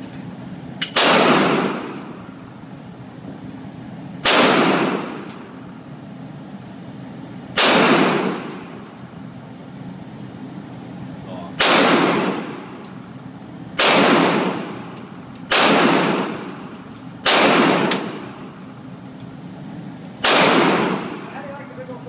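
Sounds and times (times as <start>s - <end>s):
machine gun bursts echoing: 4.2s - 5.3s, 7.6s - 8.7s, 11.6s - 12.8s, 13.8s - 18.4s, 20.2s - 21.4s.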